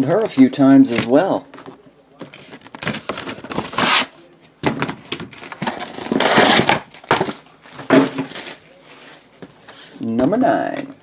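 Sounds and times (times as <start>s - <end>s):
cardboard packaging rustling: 2.3s - 4.2s, 4.8s - 9.3s.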